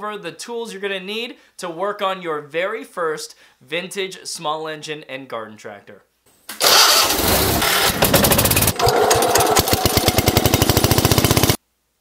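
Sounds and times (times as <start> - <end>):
engine chugging: 6.6 - 11.6.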